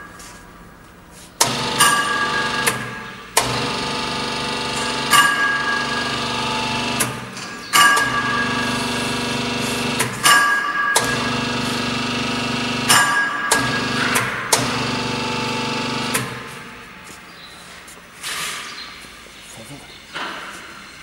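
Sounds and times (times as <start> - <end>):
sharp metal clanks: 1.4 - 3.6, 4.8 - 6.2, 6.9 - 15.0
machine hum: 1.4 - 17.3.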